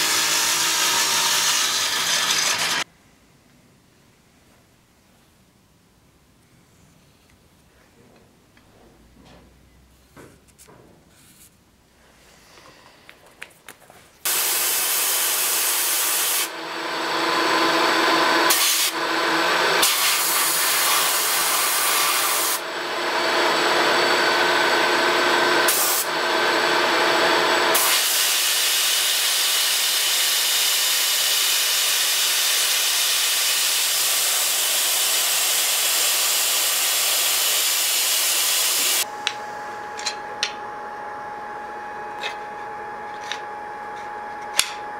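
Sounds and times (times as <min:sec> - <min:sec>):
milling machine cutting wood: 0:00.0 - 0:02.8, 0:14.3 - 0:40.1.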